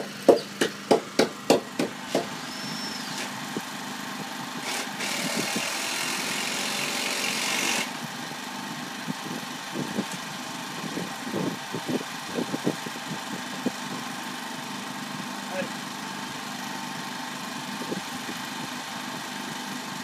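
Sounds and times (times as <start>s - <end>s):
motor humming: 2.0s - 3.8s.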